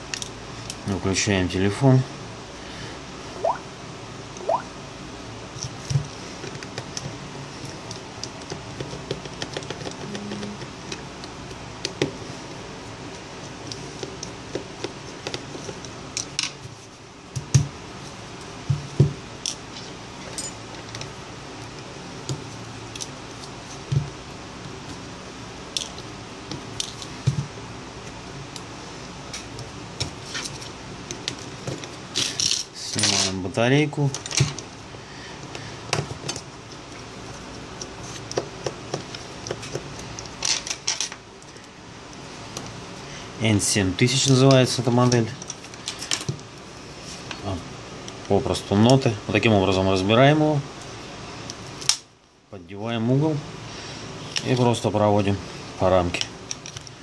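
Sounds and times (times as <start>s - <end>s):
faint hum: 9.8s - 14.6s.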